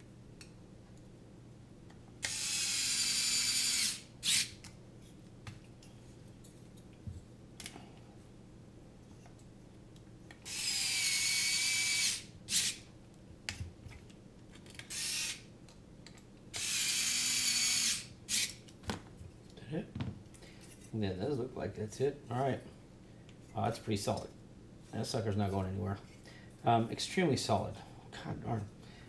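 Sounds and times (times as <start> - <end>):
electric screwdriver whine: 2.2 - 4.6, 10.5 - 12.8, 14.9 - 15.4, 16.6 - 18.5.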